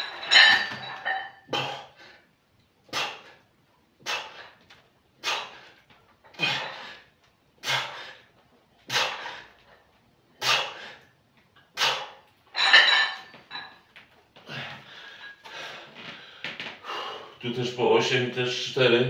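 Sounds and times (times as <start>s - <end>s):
metallic barbell clink: 0.0s - 1.5s, 12.5s - 13.9s.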